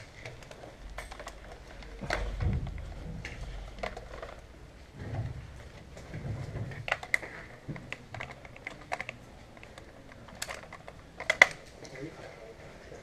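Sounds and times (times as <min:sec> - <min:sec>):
sharp irregular clicks and clacks: 0:06.2 - 0:12.1.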